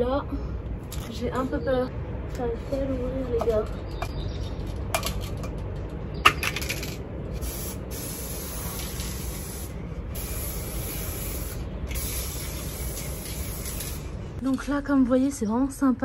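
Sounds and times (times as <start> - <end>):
spray paint hissing: 7.3 - 14.2.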